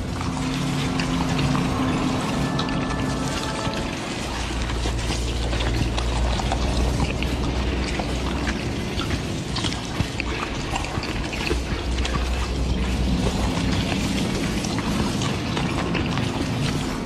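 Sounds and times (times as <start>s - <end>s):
liquid pouring and splashing: 0.0s - 17.0s
steady low drone: 0.0s - 17.0s.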